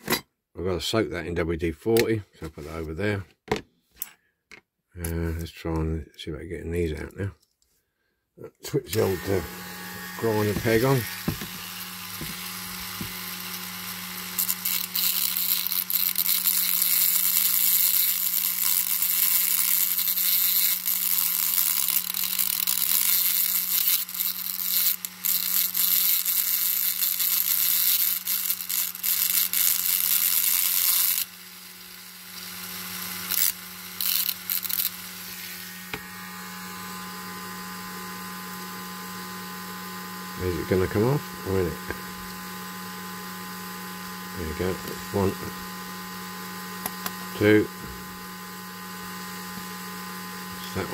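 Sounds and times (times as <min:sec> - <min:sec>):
grinder bit grinding metal: 0:08.8 - 0:38.8, 0:43.6 - 0:45.8
rotary grinder motor whining: 0:08.9 - 0:50.9.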